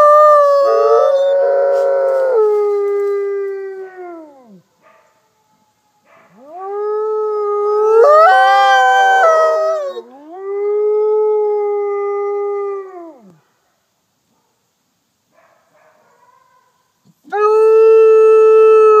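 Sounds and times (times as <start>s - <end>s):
higher wolf howl: 0.0s - 4.6s, 6.4s - 13.3s
wolf howling: 6.4s - 13.3s.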